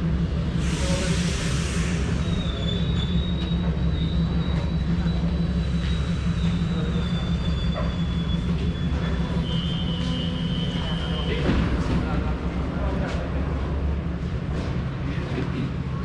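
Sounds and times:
train rumbling on rails: 0.0 - 16.0
high-pitched wheel squeal: 1.7 - 11.7.

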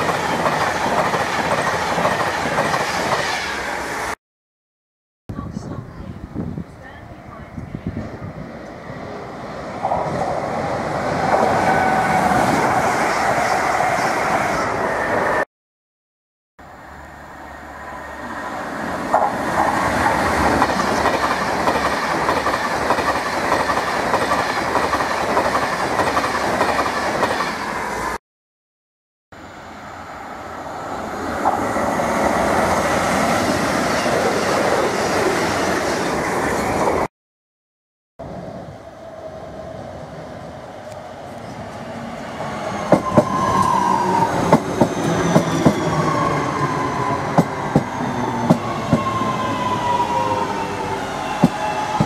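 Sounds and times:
clickety-clack over rail joints: 0.0 - 3.3, 19.1 - 27.6
train wheels rushing on rails: 0.0 - 4.2, 18.6 - 28.1, 40.8 - 52.0.

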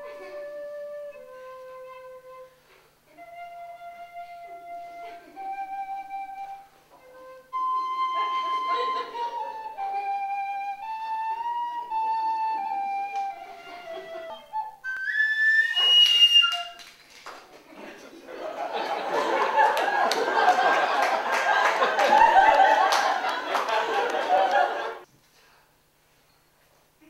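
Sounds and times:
flute playing slow melody: 0.0 - 16.8.

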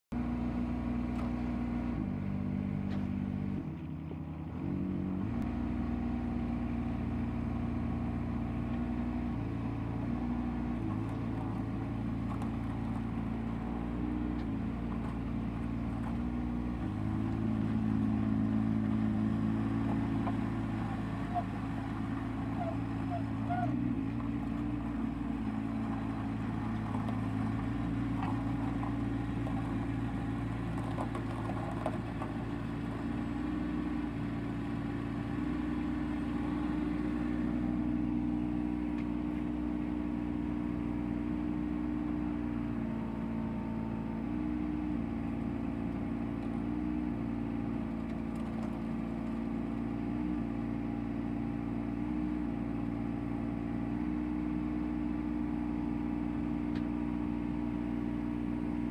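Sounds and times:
diesel engine running: 0.1 - 58.9.

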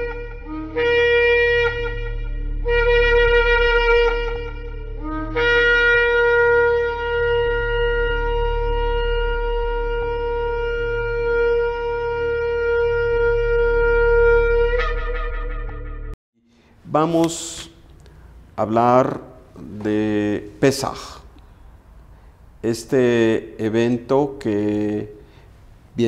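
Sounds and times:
ram's horn blasts: 0.0 - 15.8.

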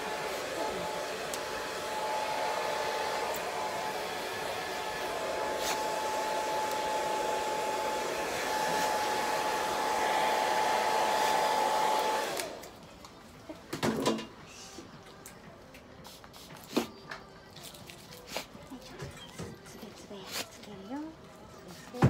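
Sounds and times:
hair dryer blowing: 0.0 - 12.8.

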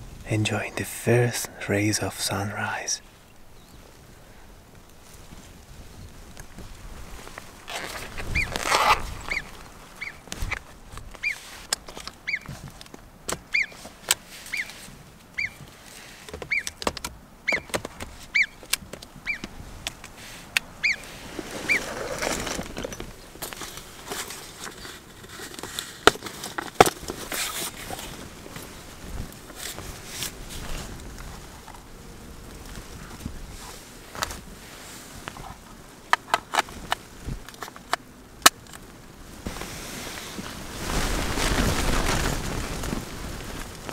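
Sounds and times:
gear clicking and rustling: 4.7 - 31.9.

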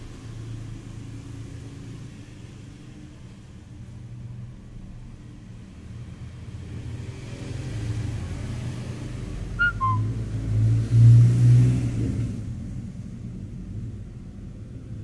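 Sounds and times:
vehicle passing by: 6.0 - 14.9
two-note chirp: 9.6 - 10.1.

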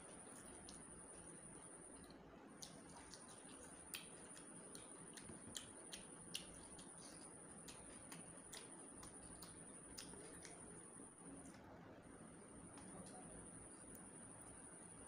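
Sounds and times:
mouth clicks and lip smacks chewing: 0.2 - 0.9, 1.9 - 11.6.

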